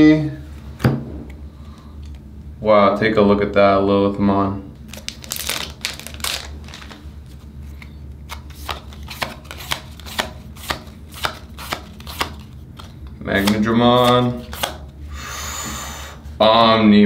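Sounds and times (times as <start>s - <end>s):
trading cards snapping: 4.9s - 7.0s, 7.8s - 14.9s.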